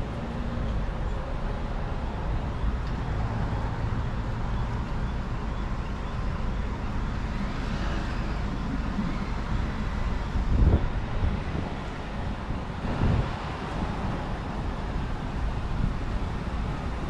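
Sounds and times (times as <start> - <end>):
faint street and traffic noise: 0.0 - 17.0
wind buffeting microphone: 7.4 - 17.0.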